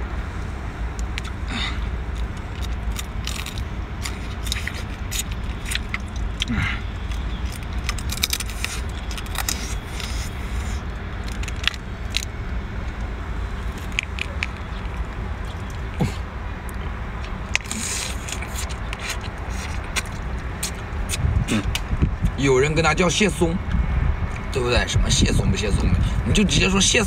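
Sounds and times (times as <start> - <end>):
steady low rumble: 0.0 - 27.0
eating sounds: 1.0 - 12.3, 13.6 - 22.0
crab shell cracking: 2.1 - 10.4, 11.2 - 12.3, 13.6 - 15.8, 17.2 - 20.8.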